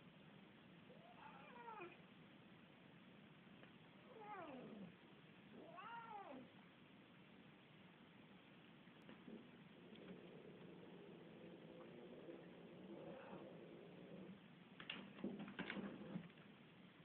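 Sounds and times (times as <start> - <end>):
cat meowing: 1.0 - 2.0, 5.6 - 6.5.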